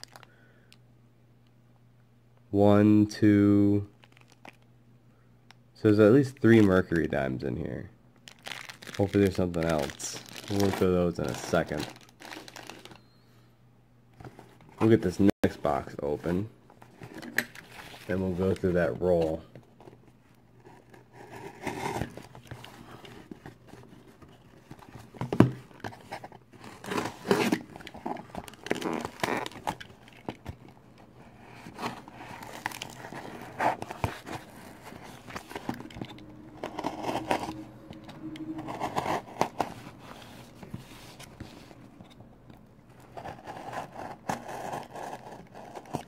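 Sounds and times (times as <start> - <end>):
cardboard box being torn open: 26.7 - 29.8.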